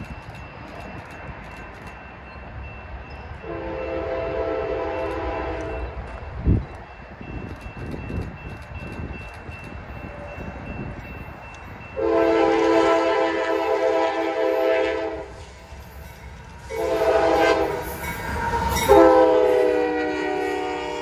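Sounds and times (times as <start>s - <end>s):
low rumble of train: 0.0s - 21.0s
locomotive air horn blasts: 3.4s - 6.0s, 12.0s - 15.5s, 16.6s - 21.0s.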